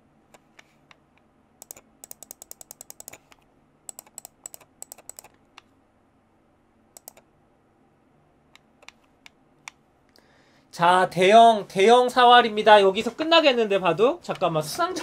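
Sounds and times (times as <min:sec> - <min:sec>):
computer keyboard keys clicking: 0:01.6 - 0:05.4, 0:07.0 - 0:07.2.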